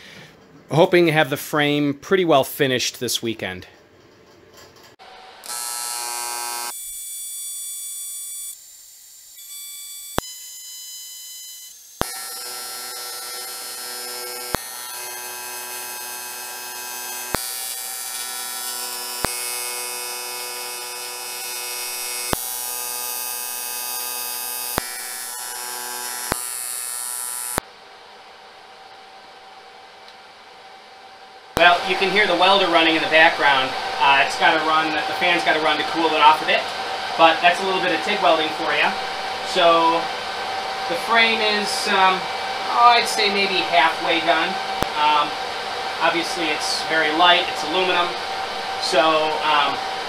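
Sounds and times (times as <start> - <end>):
welder arc buzzing: 5.0 - 27.7, 31.5 - 50.0
cooling fan running: 13.5 - 50.0.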